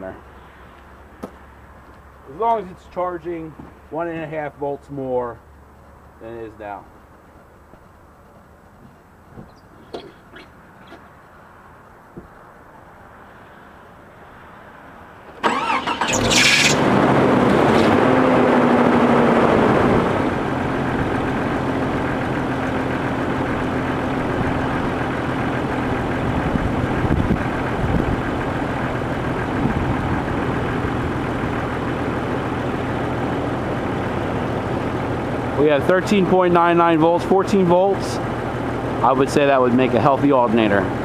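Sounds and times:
car engine idling: 5.2s - 11.9s, 18.3s - 41.0s
car starter cranking: 15.4s - 16.9s.

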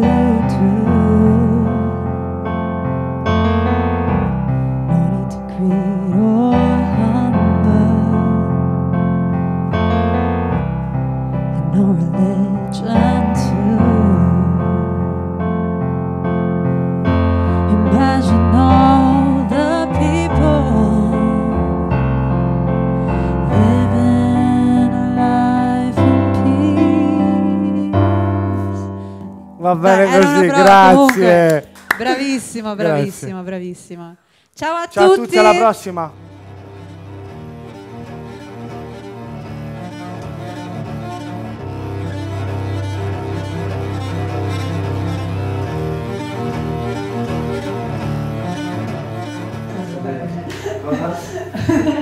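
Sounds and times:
woman singing into a microphone: 0.0s - 2.0s, 4.9s - 8.4s, 11.6s - 14.8s, 17.7s - 21.4s, 23.4s - 28.3s, 29.9s - 31.1s
digital piano chords: 0.0s - 32.8s, 35.0s - 51.7s.

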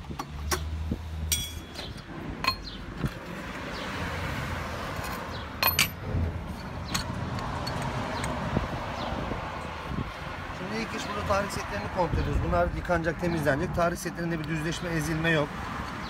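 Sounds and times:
metal parts clinking: 1.3s - 2.7s, 5.0s - 7.9s.

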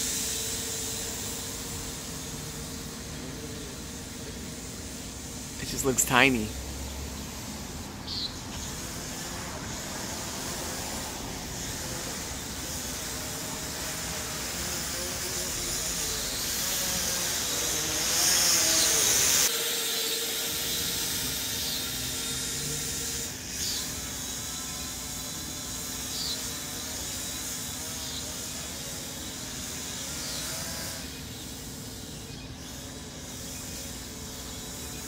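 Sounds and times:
steady hiss: 0.0s - 20.2s
faint drone propeller hum: 0.0s - 35.0s.

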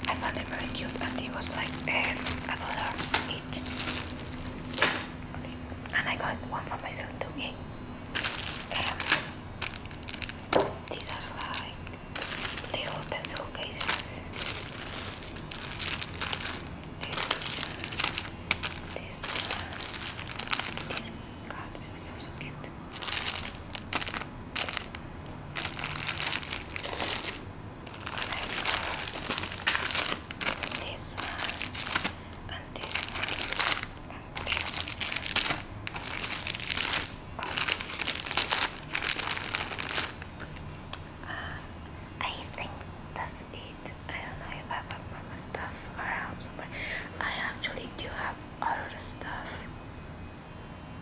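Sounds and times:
plastic bags crinkling: 0.0s - 5.2s, 8.1s - 40.9s.

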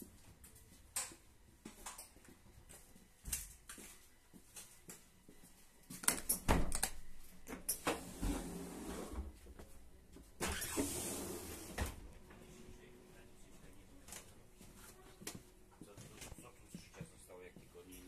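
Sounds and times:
footsteps: 11.5s - 18.0s.

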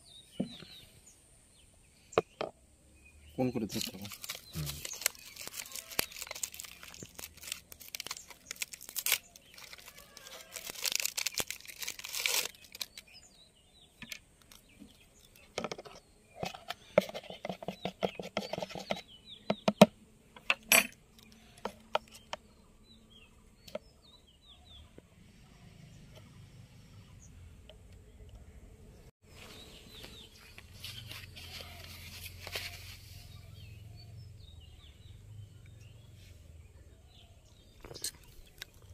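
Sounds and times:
plastic wrapper tearing and crinkling: 3.7s - 13.1s.

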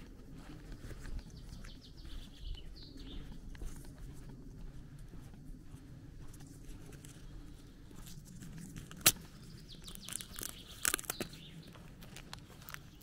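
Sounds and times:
footsteps on dirt road: 0.0s - 13.0s
small bird chirping: 0.8s - 3.5s, 9.2s - 11.9s.

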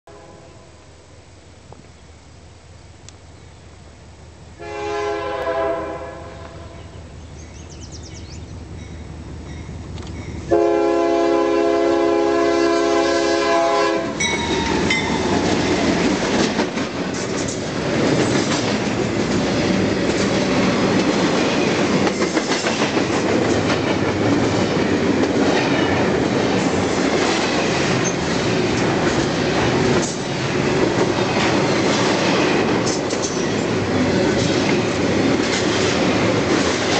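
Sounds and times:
train air horn blasts: 0.1s - 0.9s, 4.6s - 6.9s, 10.5s - 15.3s
train rumble: 0.1s - 36.9s
wheels clattering over rail joints: 14.2s - 36.9s.

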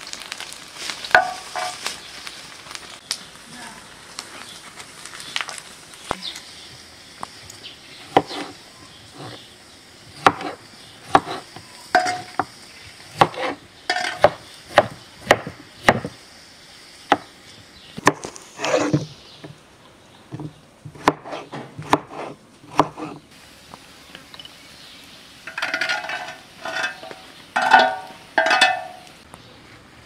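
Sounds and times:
knife scrape: 10.2s - 12.3s, 13.2s - 14.3s, 18.6s - 19.1s, 21.0s - 23.2s.

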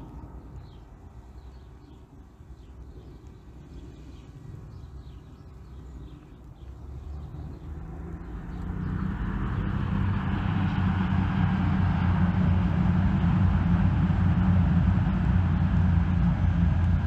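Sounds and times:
train rumbling: 7.7s - 17.0s.

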